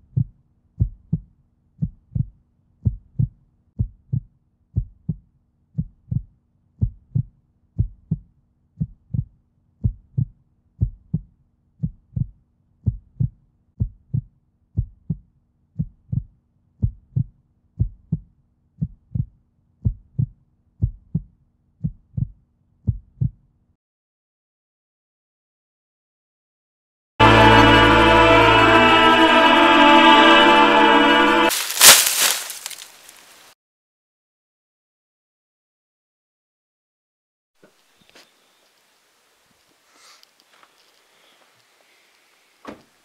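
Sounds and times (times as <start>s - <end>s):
heartbeat thumps: 0.0s - 23.4s.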